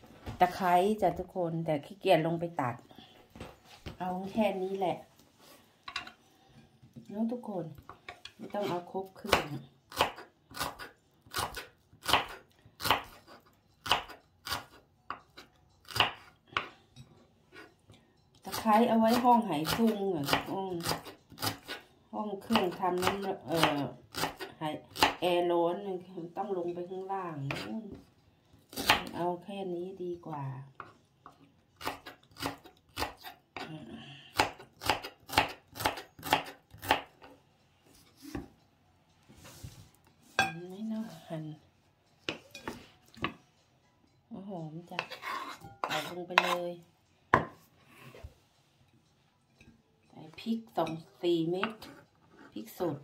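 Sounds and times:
knife chopping on wooden board: 9.3s - 15.2s, 34.4s - 37.1s.

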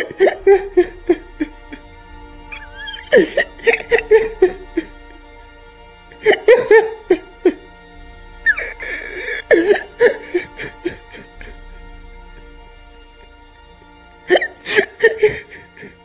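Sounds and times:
man sobbing: 0.0s - 1.9s, 2.5s - 5.3s, 6.2s - 7.6s, 8.4s - 11.8s, 14.3s - 16.0s
background music: 0.0s - 16.0s.

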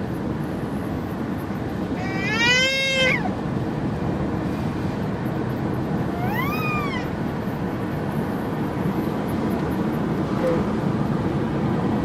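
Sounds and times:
road and engine noise: 0.0s - 12.0s.

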